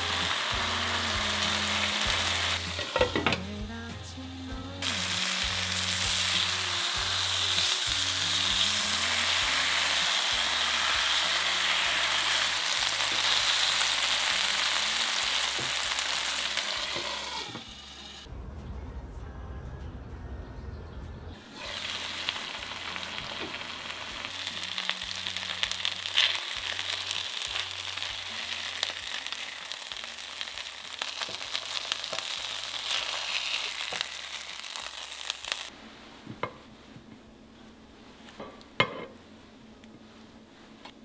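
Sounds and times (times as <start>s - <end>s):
meat sizzling in a pan: 0.0s - 3.4s, 4.8s - 18.3s, 21.5s - 35.7s
crackling spatter: 21.8s - 35.7s.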